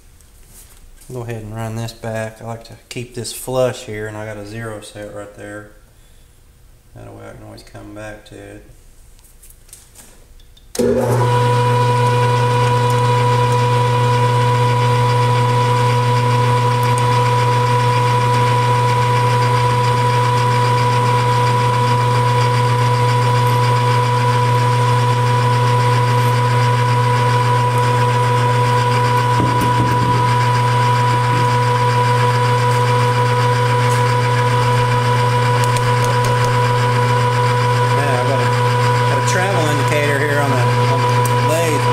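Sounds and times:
metal lathe motor humming: 10.8s - 41.9s.

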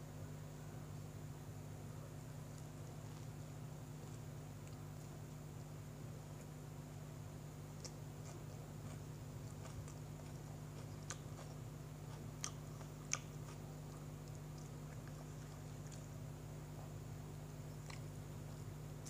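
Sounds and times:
person chewing food: 2.4s - 6.7s, 7.4s - 19.0s.

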